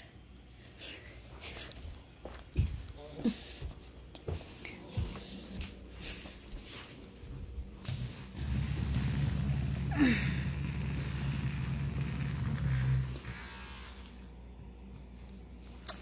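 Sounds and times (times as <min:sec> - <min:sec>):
massager motor humming: 0:07.6 - 0:15.5.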